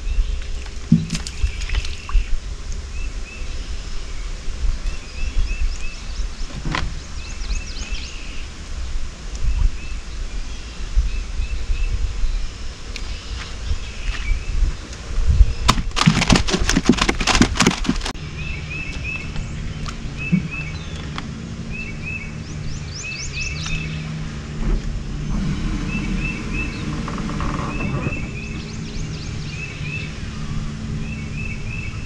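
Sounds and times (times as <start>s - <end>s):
birds chirping: 0.0s - 8.7s, 9.3s - 32.0s
dense rattling clatter: 15.7s - 18.2s.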